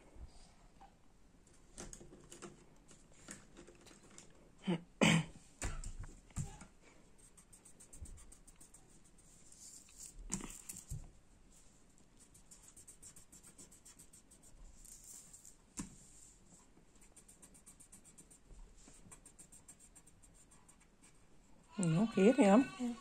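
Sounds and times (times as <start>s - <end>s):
pencil scratching on paper: 7.2s - 10.8s, 12.2s - 15.4s, 17.0s - 21.2s.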